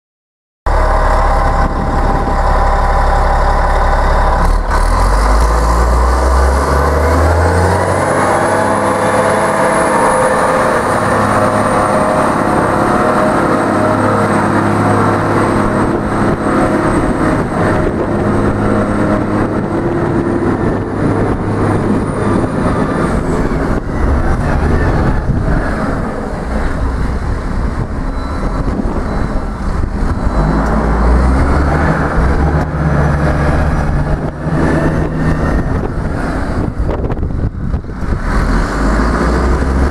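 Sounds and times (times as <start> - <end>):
truck diesel engine revving: 0.7 - 39.9.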